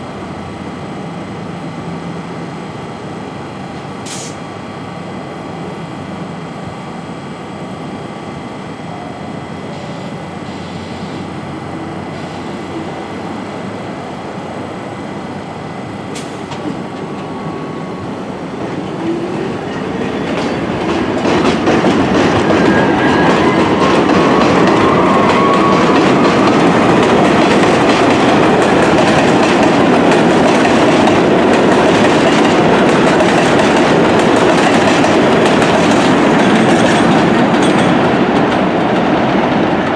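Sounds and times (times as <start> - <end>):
train wheels rumbling on steel track: 0.0 - 39.9.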